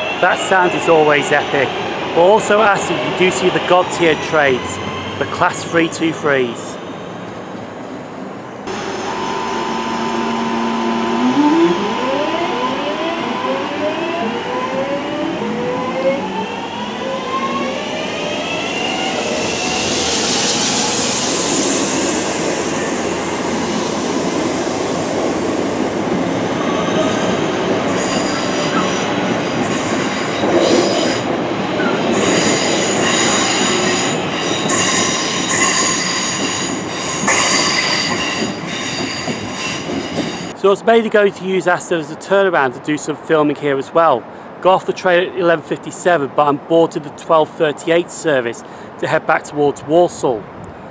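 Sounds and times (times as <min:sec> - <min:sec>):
train squealing: 0:00.0 - 0:01.8, 0:02.8 - 0:07.1, 0:26.6 - 0:40.6
electric train motors whining: 0:08.7 - 0:21.3.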